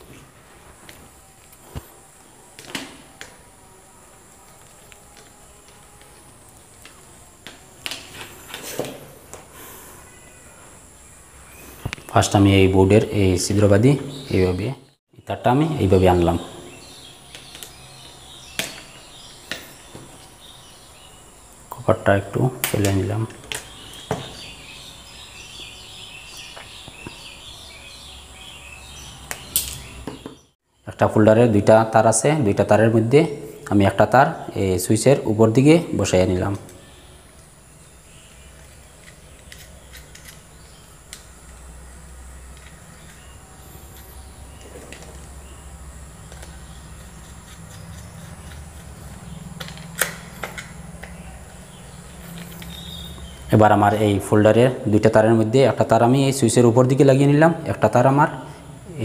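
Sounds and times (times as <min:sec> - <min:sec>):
small birds chirping: 0:09.6 - 0:30.9, 0:35.6 - 0:55.4.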